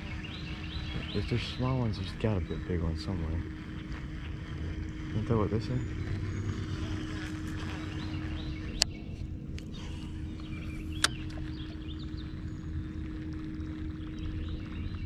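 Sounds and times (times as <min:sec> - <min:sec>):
low steady hum: 0:00.0 - 0:15.0
outdoor background noise: 0:00.0 - 0:15.0
small birds chirping: 0:00.0 - 0:15.0
sharp clicks: 0:10.4 - 0:11.6.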